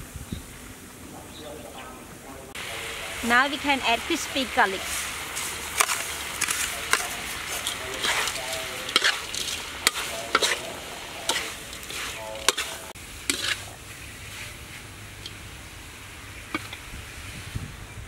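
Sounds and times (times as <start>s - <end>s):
food sizzling in a wok: 2.6s - 18.0s
spatula scraping a wok: 4.7s - 15.4s.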